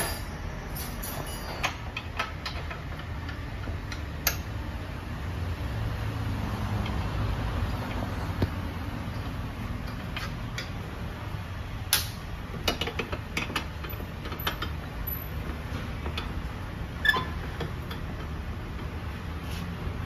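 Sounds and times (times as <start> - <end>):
metal tool clicking on bolts: 0.0 - 4.5.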